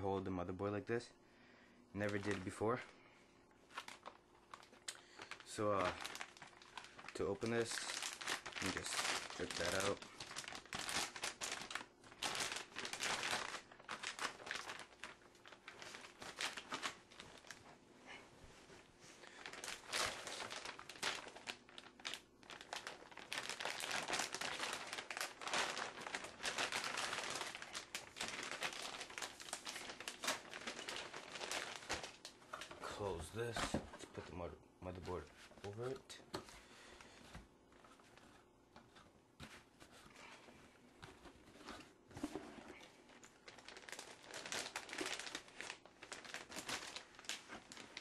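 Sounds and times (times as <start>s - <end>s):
plastic bag crinkling: 2.0s - 2.9s, 3.6s - 17.8s, 19.2s - 33.6s, 41.6s - 48.0s.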